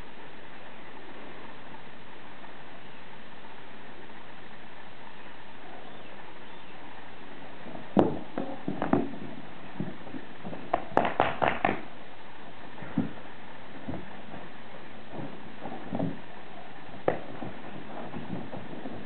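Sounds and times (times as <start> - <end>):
background hiss: 0.0 - 19.0
sharp knocks: 7.9 - 11.8.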